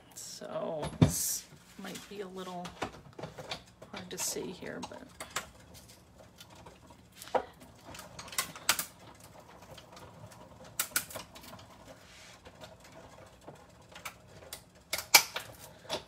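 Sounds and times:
die-cutting machine clicks and cracks: 7.9 - 10.0, 10.6 - 11.7, 13.5 - 16.0.

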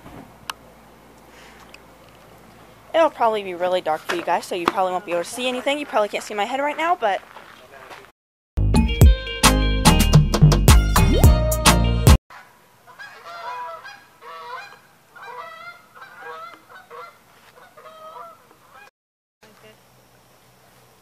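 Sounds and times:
music: 8.6 - 12.2.

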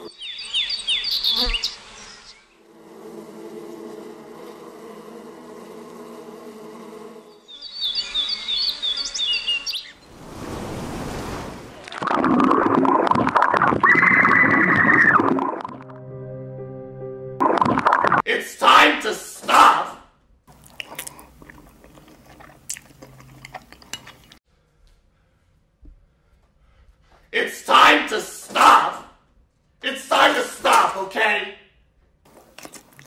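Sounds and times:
bumblebee buzzing: 1.2 - 11.3
loud rushing churning noise: 10.1 - 11.8.

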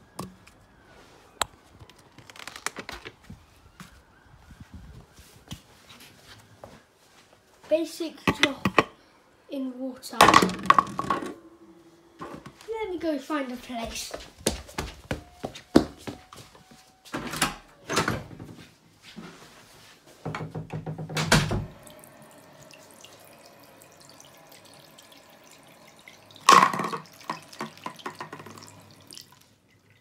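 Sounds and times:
footsteps: 12.2 - 17.1
tap water running into sink: 21.7 - 30.0
water splashing on plastic bottle: 26.3 - 29.5.

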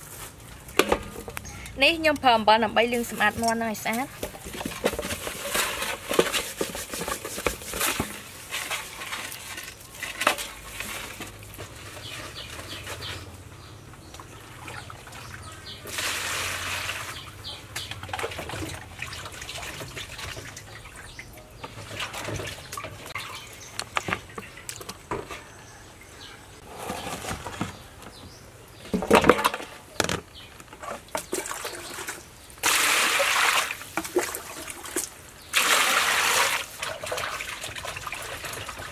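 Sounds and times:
water pouring: 14.2 - 25.0, 31.1 - 38.9.

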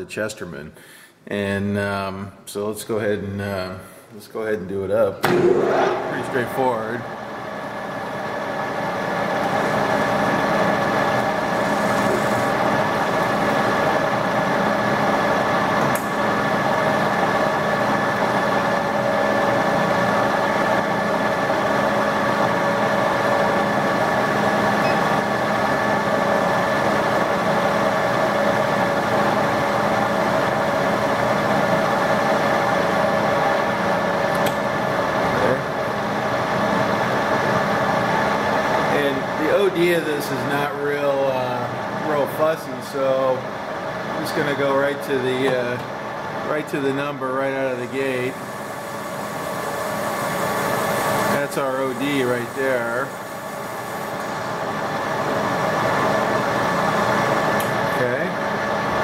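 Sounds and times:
metal lathe whining: 7.9 - 16.0.

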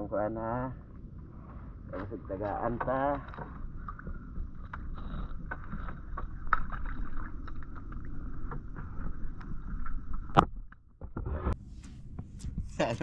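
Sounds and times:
water against boat: 0.0 - 13.0
wind rumble: 0.0 - 13.0.

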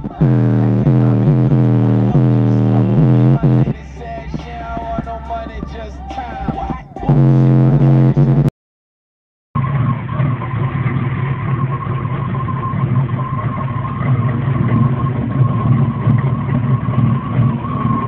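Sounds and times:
car engine at high revs: 0.0 - 4.5, 7.1 - 8.5.

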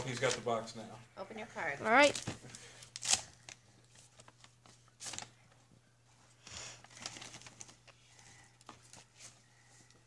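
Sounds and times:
paper rustling and tearing: 2.9 - 5.3, 6.8 - 7.8.

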